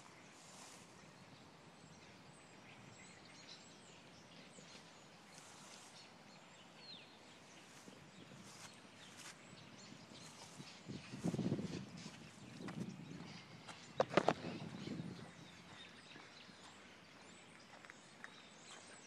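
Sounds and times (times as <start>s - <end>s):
faint outdoor hiss: 0.0s - 11.4s
flock of birds chirping: 0.0s - 19.0s.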